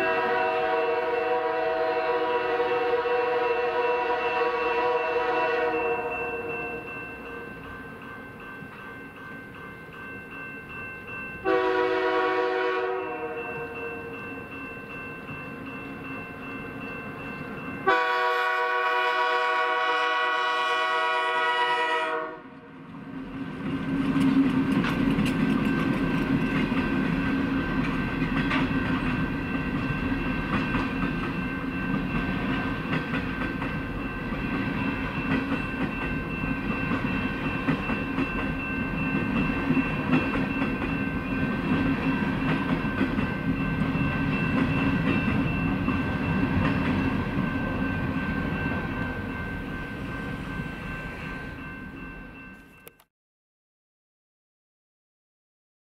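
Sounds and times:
locomotive horn blast: 0.0s - 6.9s, 11.4s - 13.8s, 17.8s - 22.7s
train rumbling past: 0.0s - 52.9s
thin ringing tone: 5.7s - 11.5s.

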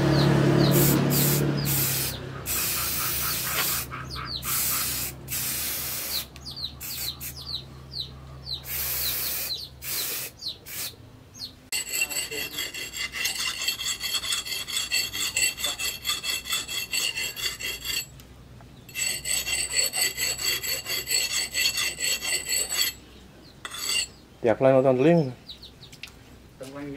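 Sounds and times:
aerosol spray can hissing: 0.8s - 3.9s, 4.5s - 7.4s, 8.7s - 10.9s
axe rasping on sharpening stone: 11.7s - 18.1s, 18.9s - 23.0s, 23.6s - 24.2s.

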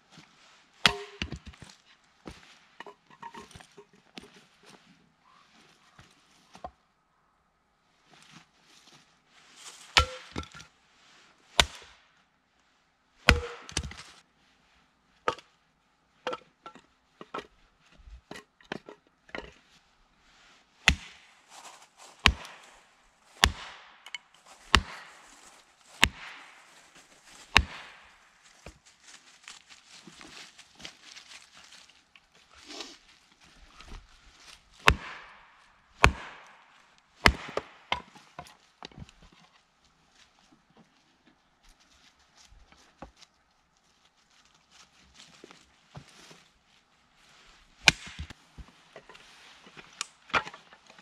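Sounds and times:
hatchet chopping firewood: 0.8s - 1.6s, 9.9s - 10.7s, 11.6s - 12.0s, 13.2s - 14.2s, 20.8s - 21.4s, 22.2s - 25.3s, 26.0s - 26.6s, 27.4s - 28.8s, 34.8s - 39.2s, 47.8s - 48.4s, 49.8s - 51.0s.

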